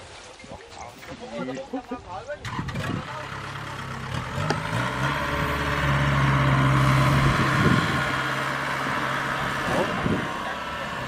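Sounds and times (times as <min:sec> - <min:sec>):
farm machine engine idling: 0:02.4 - 0:11.0.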